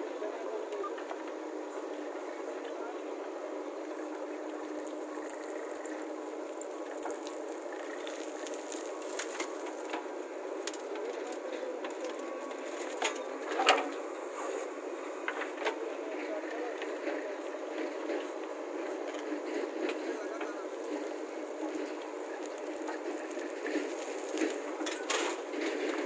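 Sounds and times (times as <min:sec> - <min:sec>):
backhoe engine running: 0:00.0 - 0:26.0
soil pouring from bucket: 0:04.5 - 0:11.4, 0:20.4 - 0:26.0.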